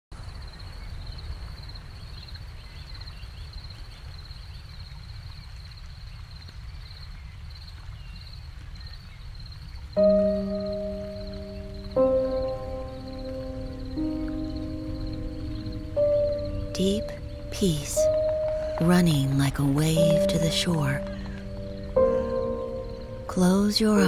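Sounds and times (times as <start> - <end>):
wind rumble: 0.2 - 24.0
faint chirps: 8.8 - 24.0
music: 10.0 - 24.0.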